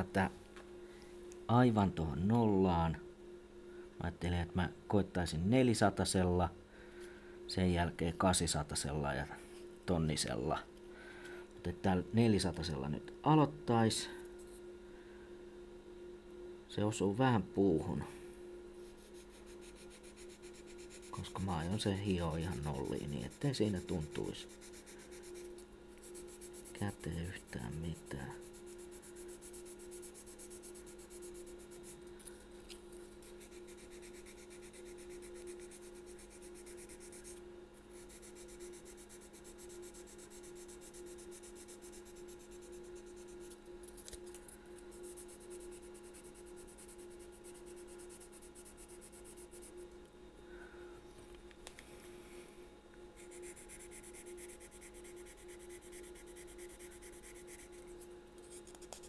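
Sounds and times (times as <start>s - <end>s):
steady low hum: 0.0s - 59.0s
sandpaper rubbing on wood: 19.0s - 25.4s, 26.0s - 31.9s, 33.2s - 37.3s, 38.0s - 43.5s, 53.3s - 57.8s.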